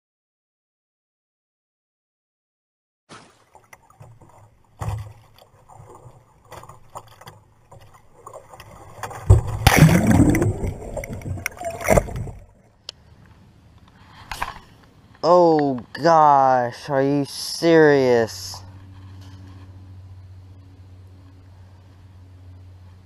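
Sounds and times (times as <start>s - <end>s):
water rushing and splashing: 3.1s - 12.6s
water lapping against kayak: 3.1s - 13.2s.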